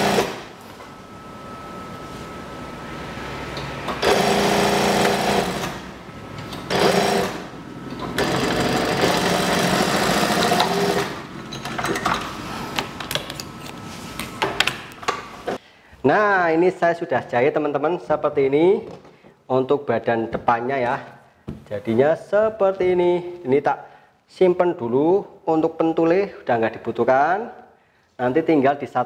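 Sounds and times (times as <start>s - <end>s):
sewing machine stitching: 0.0s - 0.4s, 4.0s - 5.9s, 6.5s - 11.2s.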